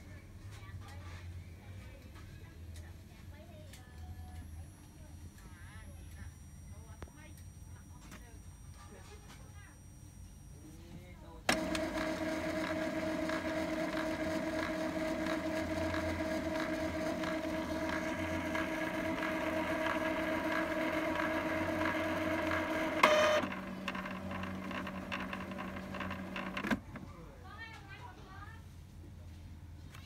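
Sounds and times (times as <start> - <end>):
printer clunk: 11.5 - 27.1
printer motor whining: 11.5 - 27.1.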